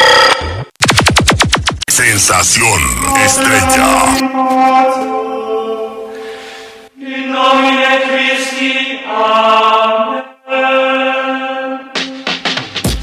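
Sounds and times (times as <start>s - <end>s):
choir holding long chords: 3.3s - 12.0s.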